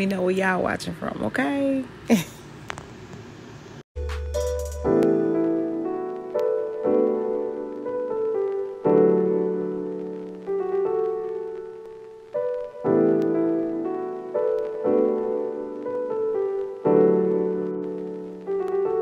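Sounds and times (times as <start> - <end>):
slow soft piano chords: 4.0 - 19.0.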